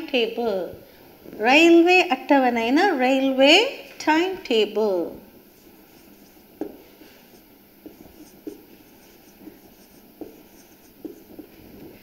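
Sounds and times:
marker scratching on whiteboard: 5.5 - 11.6.

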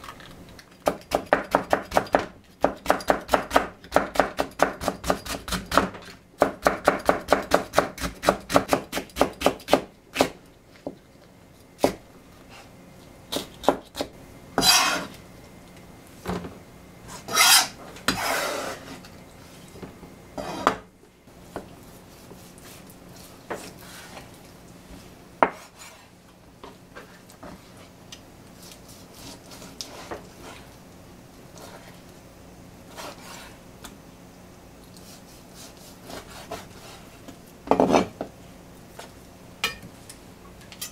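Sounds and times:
knife chopping on cutting board: 0.8 - 10.4, 13.3 - 15.1, 25.4 - 26.0, 35.6 - 37.0.

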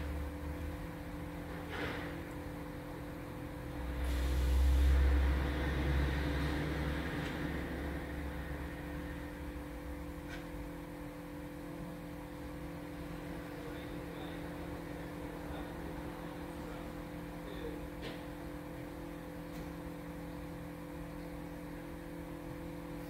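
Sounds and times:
steady low hum: 0.0 - 23.0
truck rumbling past: 3.8 - 9.4.

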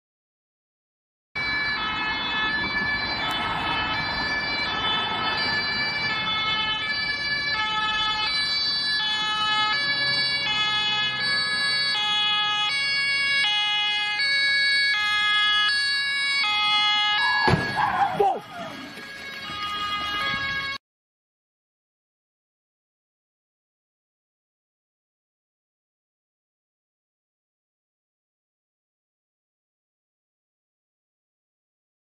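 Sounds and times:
two-tone emergency siren: 1.4 - 20.8.

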